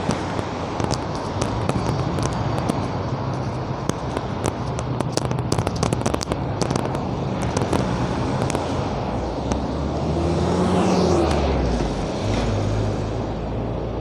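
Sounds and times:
sharp crackling clicks: 0.0s - 9.8s
road traffic: 0.0s - 14.0s
vehicle engine passing: 5.3s - 14.0s.

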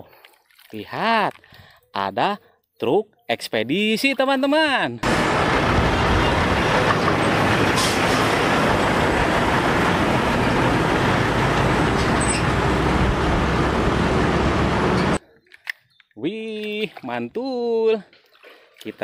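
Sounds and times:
road noise: 5.0s - 15.2s
trucks driving past: 5.0s - 15.2s.

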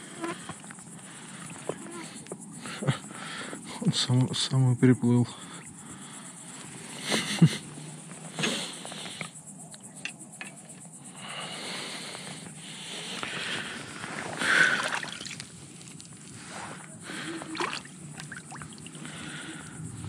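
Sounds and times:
wet squelching and slapping: 14.1s - 15.5s, 17.5s - 18.9s.

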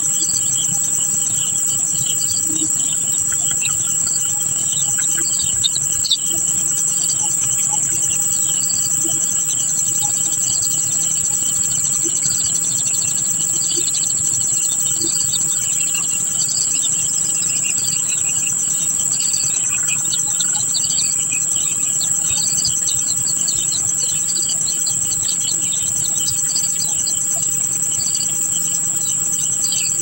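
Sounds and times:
bird chirps: 0.0s - 30.0s
high-pitched insect drone: 0.0s - 30.0s.

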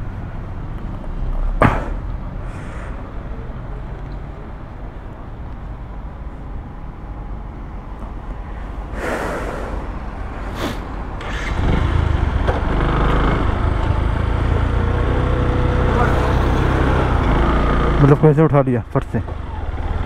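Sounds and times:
wind rumble: 5.6s - 17.8s
passing vehicle whoosh: 8.6s - 18.2s
motorcycle engine rumble: 9.9s - 18.2s.

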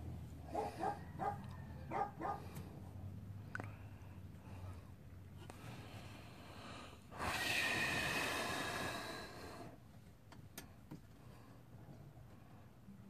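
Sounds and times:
heavy breathy exhale: 5.6s - 9.8s.

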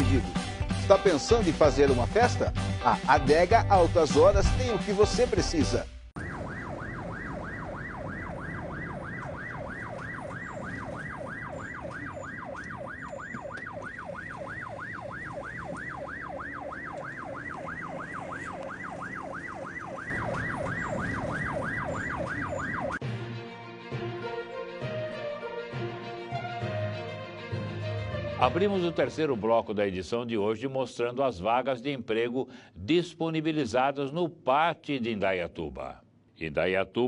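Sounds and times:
electronic siren yelping: 6.2s - 23.0s.

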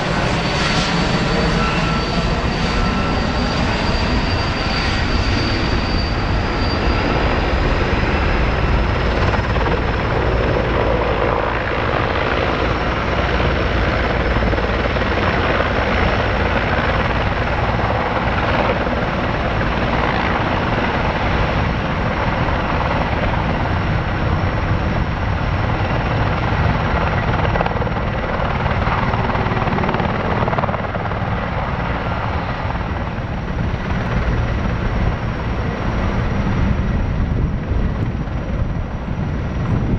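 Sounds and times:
helicopter rotor and turbines: 0.0s - 39.9s.

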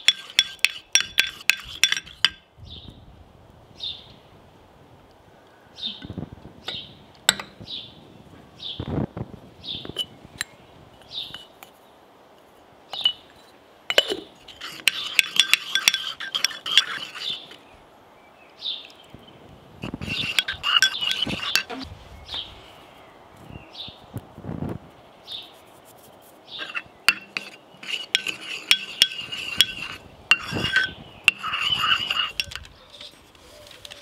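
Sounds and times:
bird chirping: 5.8s - 7.0s, 9.6s - 11.9s, 17.1s - 24.1s, 25.2s - 28.0s
rapid clinking: 13.9s - 17.4s, 20.0s - 21.8s, 26.6s - 32.7s.

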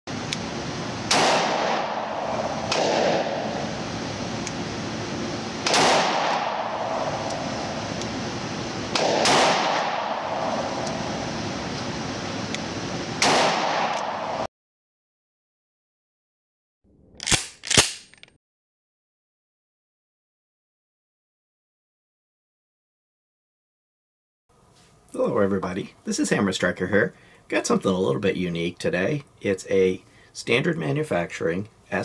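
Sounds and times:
revolver shots echoing indoors: 1.0s - 4.6s, 5.6s - 8.1s, 8.8s - 11.5s, 13.2s - 14.5s.

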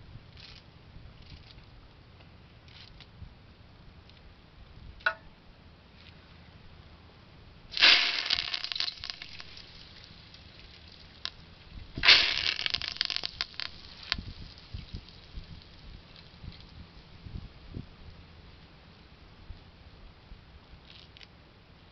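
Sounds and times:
leaves crackling and rustling: 7.8s - 11.4s, 12.0s - 17.1s.

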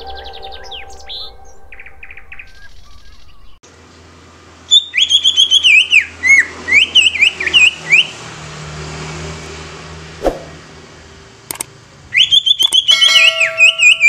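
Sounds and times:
bird singing whistled phrases: 0.0s - 3.6s, 4.7s - 8.1s, 12.1s - 14.0s
faint bird chirps: 0.0s - 3.6s.

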